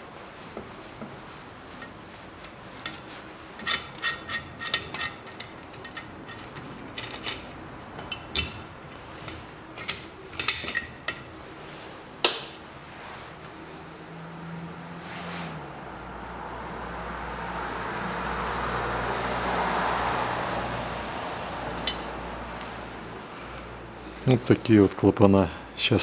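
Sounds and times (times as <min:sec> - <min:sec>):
metal clicks and clinks: 0:01.8 - 0:08.6, 0:09.2 - 0:11.3, 0:21.8 - 0:22.2.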